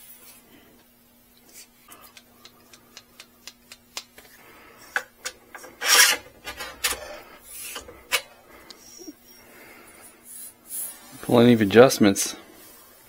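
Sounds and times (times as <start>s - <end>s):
loud scraping rub: 5.6s - 8.0s.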